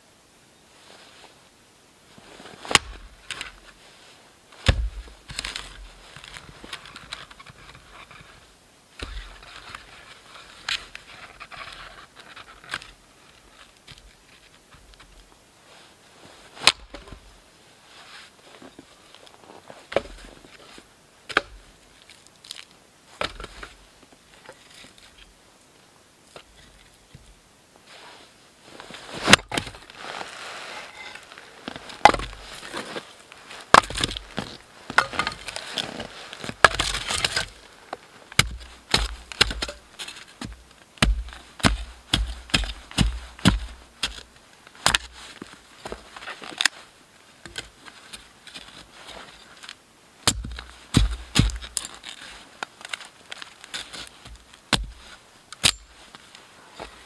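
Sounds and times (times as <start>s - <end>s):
wood scraping and rustling: 2.1s - 17.3s, 17.9s - 25.4s, 26.3s - 57.0s
hatchet chopping wood: 4.7s - 5.0s, 38.4s - 39.8s, 40.4s - 45.1s, 50.2s - 51.8s, 54.3s - 55.0s.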